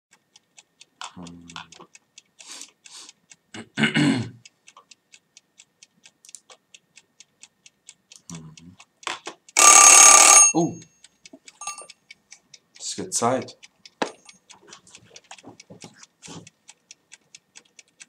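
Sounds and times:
clock ticking rapidly: 0:00.1 - 0:18.0
alarm clock ringing: 0:09.6 - 0:11.0, 0:11.6 - 0:11.9.

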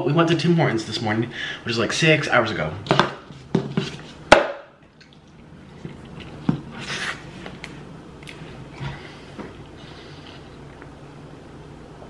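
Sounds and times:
wet chewing sounds: 0:04.8 - 0:11.0.

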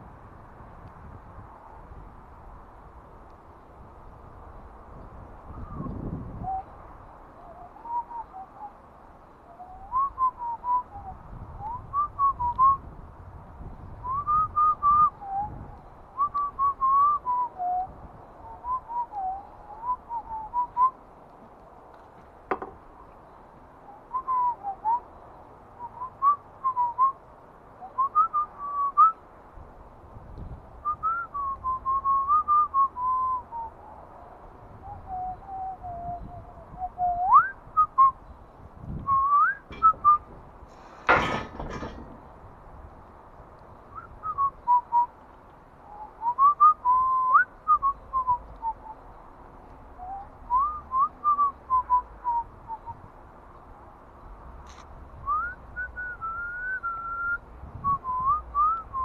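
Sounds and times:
man whistling a tune: 0:09.6 - 0:12.8, 0:14.0 - 0:15.6, 0:16.2 - 0:17.9, 0:24.1 - 0:25.0, 0:25.8 - 0:27.2, 0:27.8 - 0:29.2, 0:30.8 - 0:33.7, 0:34.8 - 0:38.2, 0:39.0 - 0:40.3, 0:43.9 - 0:45.1, 0:45.9 - 0:49.0, 0:50.0 - 0:53.0, 0:55.2 - 0:59.0
sharp knock: 0:22.5 - 0:22.8.

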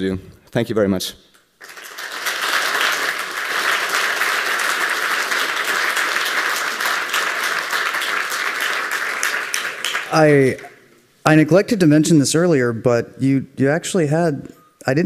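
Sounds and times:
audience applauding: 0:01.6 - 0:10.8.

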